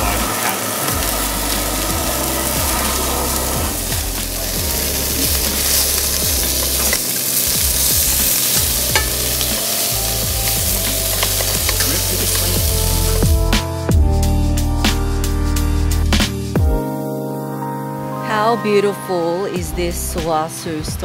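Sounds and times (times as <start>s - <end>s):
steaks sizzling in a hot pan: 0.0s - 13.4s.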